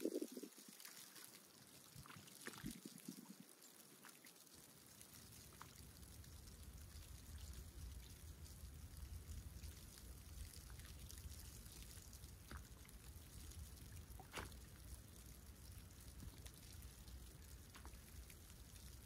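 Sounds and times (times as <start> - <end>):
low steady rumble: 4.8 - 19.0
sea water lapping: 14.0 - 14.7.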